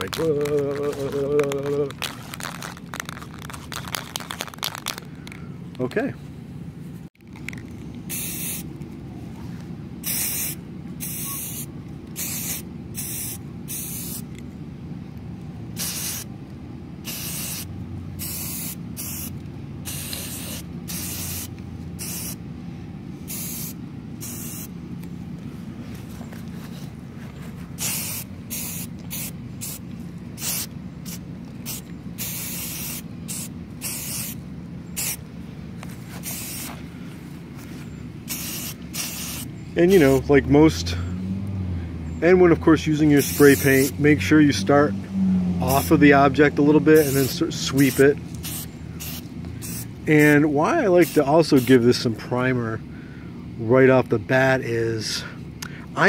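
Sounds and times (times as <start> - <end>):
aerosol spray can hissing: 8.1 - 8.6, 10.1 - 14.2, 17.1 - 19.3, 19.9 - 22.4, 27.8 - 29.8, 30.4 - 34.4, 35.0 - 35.2, 36.2 - 36.7, 38.3 - 39.5, 47.0 - 49.9.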